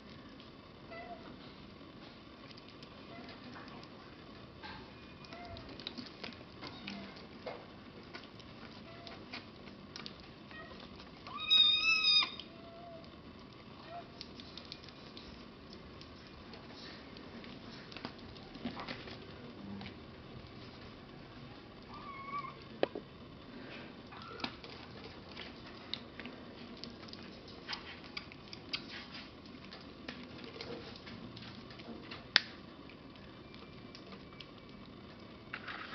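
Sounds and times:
kittens suckling at a bottle: 0:05.0 - 0:19.2, 0:23.5 - 0:35.9
kitten meowing: 0:10.6 - 0:13.0
kitten squeak: 0:11.3 - 0:12.4.

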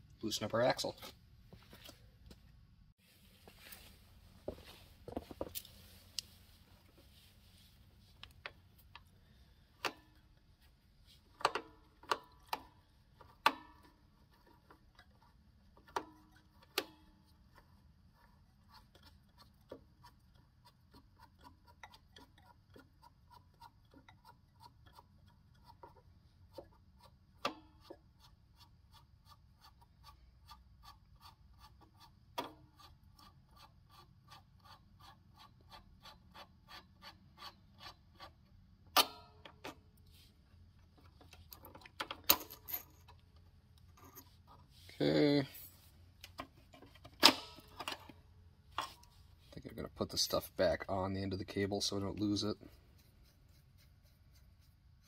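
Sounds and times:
nut turning with small ticks: 0:14.1 - 0:38.6
small metal parts clinking: 0:41.4 - 0:43.2.

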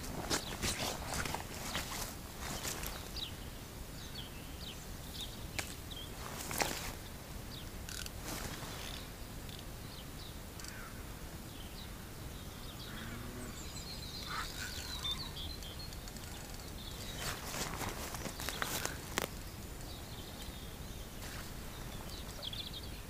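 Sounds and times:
brief rustle: 0:00.0 - 0:03.1, 0:05.6 - 0:07.0, 0:16.1 - 0:19.4
small birds chirping: 0:00.0 - 0:23.0.

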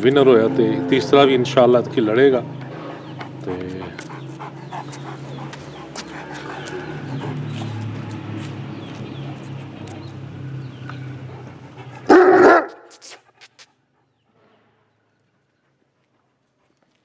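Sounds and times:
large dog barking: 0:11.8 - 0:12.9.

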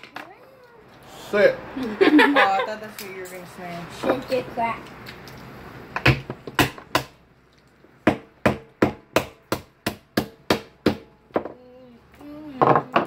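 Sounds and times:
hammering on hard surface: 0:08.0 - 0:11.6.

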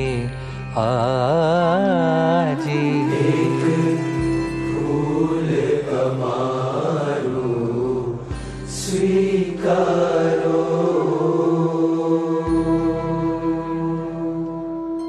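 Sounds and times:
gliding melodic line: 0:00.7 - 0:05.9
steady held drone: 0:02.6 - 0:15.0.

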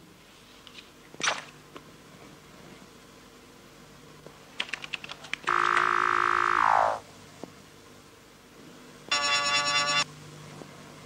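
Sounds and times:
buzzy electronic beep: 0:05.5 - 0:07.0, 0:09.1 - 0:10.0
electronic tone sliding down: 0:05.5 - 0:07.0.

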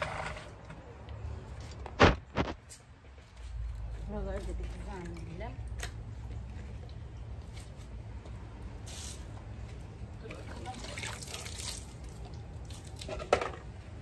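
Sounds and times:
water splashing onto stone paving: 0:10.2 - 0:13.2.

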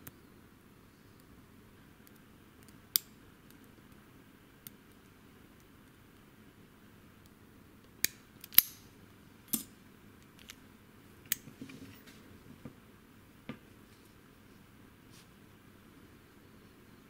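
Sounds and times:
padlock shackle clicking: 0:08.0 - 0:08.8.

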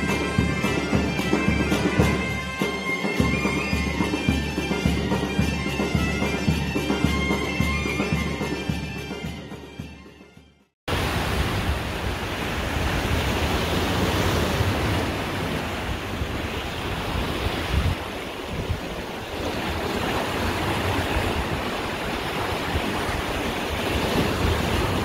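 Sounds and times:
sea waves rushing: 0:00.0 - 0:09.8, 0:10.9 - 0:25.0
wind buffeting microphone: 0:10.9 - 0:25.0.

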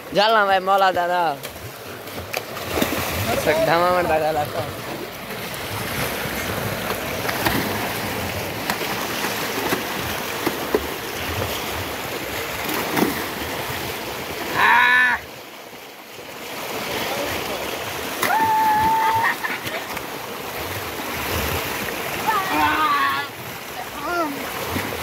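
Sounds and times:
people splashing in water: 0:00.6 - 0:14.7, 0:16.4 - 0:25.0
person shouting: 0:14.5 - 0:15.3, 0:18.2 - 0:19.4, 0:22.2 - 0:23.3.

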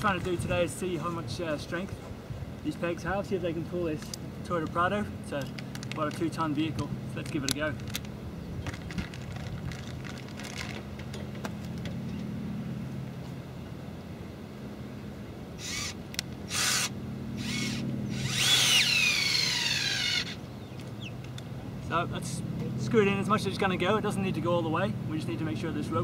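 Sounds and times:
steady low hum: 0:00.0 - 0:26.0
cordless drill whining: 0:15.6 - 0:20.4.

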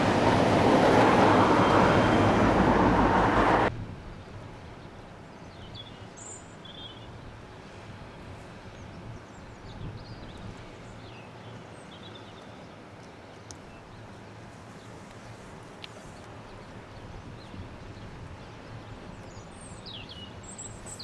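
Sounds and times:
diesel locomotive passing: 0:00.0 - 0:03.7.

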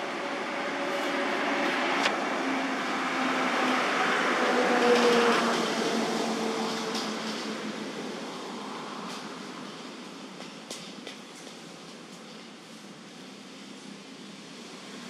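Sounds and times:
vehicle passing by: 0:00.0 - 0:07.9.

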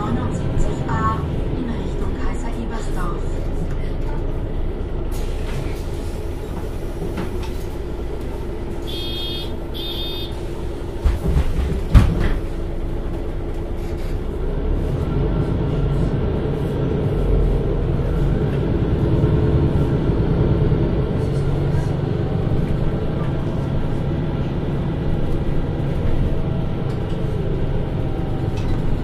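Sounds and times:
bus diesel engine: 0:00.0 - 0:29.0
short beeps: 0:08.9 - 0:10.4
bus doors thumping shut: 0:08.9 - 0:12.6.

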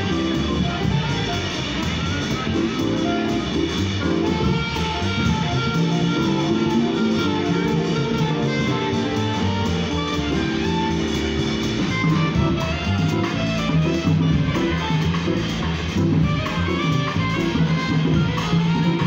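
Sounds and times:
live jazz quartet: 0:00.0 - 0:19.0
plucked upright bass: 0:00.0 - 0:19.0.

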